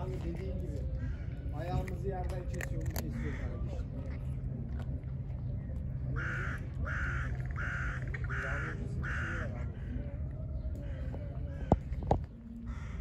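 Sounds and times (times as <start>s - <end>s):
low background hum: 0.0s - 13.0s
bird cawing: 6.2s - 10.0s, 12.7s - 13.0s.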